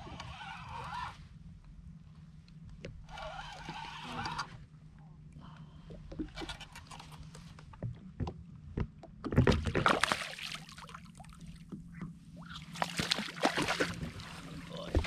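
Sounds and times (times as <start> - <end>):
fish splashing at water surface: 12.8 - 14.3.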